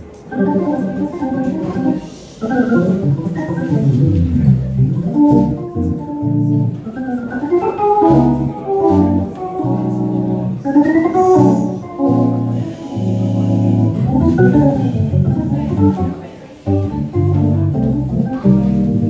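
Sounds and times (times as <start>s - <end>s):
organ playing jazz chords: 0.3s - 19.0s
low bass notes: 2.8s - 6.8s, 8.0s - 19.0s.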